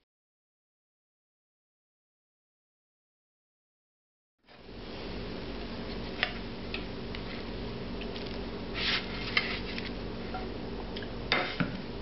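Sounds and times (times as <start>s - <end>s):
steady low hum: 4.5s - 12.0s.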